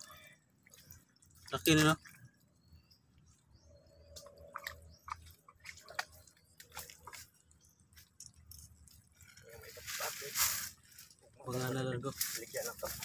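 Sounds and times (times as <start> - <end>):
wet mud squelching: 3.4 - 9.4.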